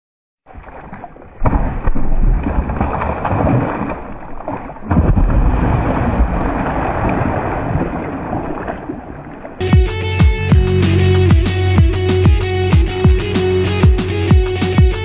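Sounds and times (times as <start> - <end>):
fish thrashing and splashing: 0.5 - 9.3.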